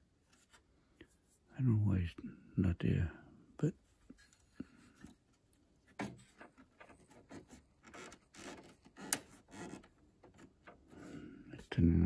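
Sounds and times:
metal and plastic rubbing: 4.0s - 11.2s.

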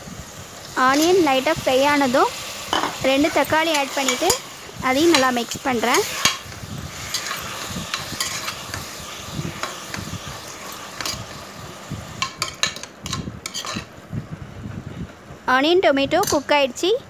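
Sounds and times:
vegetables sizzling in oil: 0.0s - 14.1s
metal spoon scraping a pot: 5.1s - 8.9s, 9.5s - 11.4s, 12.2s - 13.9s.

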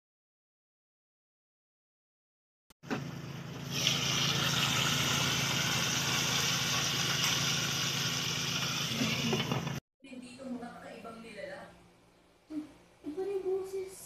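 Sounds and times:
water boiling: 3.5s - 9.8s.

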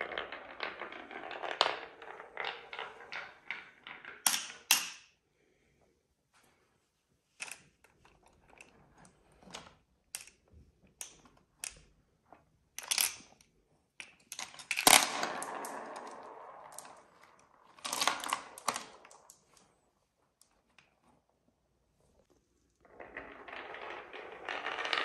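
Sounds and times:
marbles rattling in plastic bucket: 0.0s - 4.5s, 14.6s - 19.7s, 22.8s - 25.0s.

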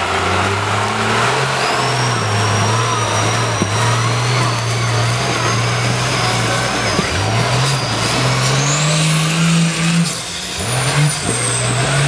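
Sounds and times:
diesel truck engine under load: 0.0s - 12.0s
high whine: 0.0s - 12.0s.

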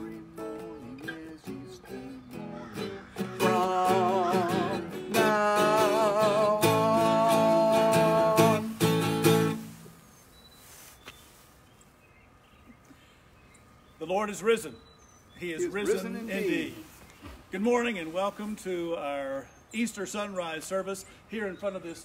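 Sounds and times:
man singing: 0.0s - 9.6s
acoustic guitar strummed: 0.0s - 9.8s.

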